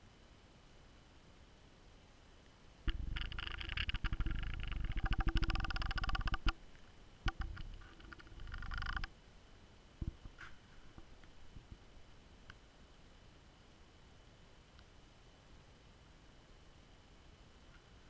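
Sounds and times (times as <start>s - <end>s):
fast rattling clicks: 2.9s - 6.6s, 7.2s - 9.1s.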